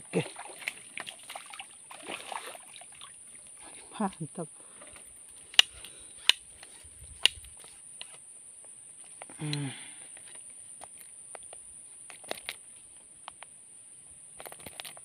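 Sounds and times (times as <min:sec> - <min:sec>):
fishing tackle clicks: 0:04.9 - 0:08.2, 0:09.2 - 0:12.6, 0:14.4 - 0:15.0.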